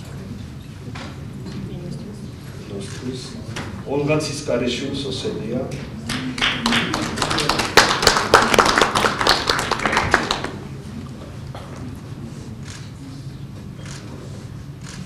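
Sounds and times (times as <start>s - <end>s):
small audience applauding: 6.1s - 10.7s.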